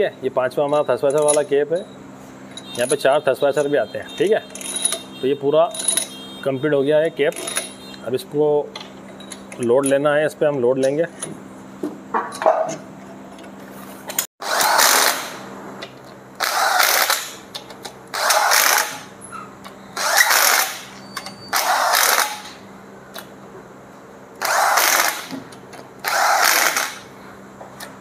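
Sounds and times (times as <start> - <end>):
power wrench bursts: 4.4 - 6.3, 7.3 - 8.0, 14.4 - 15.5, 16.4 - 17.5, 18.1 - 22.6, 24.4 - 27.1.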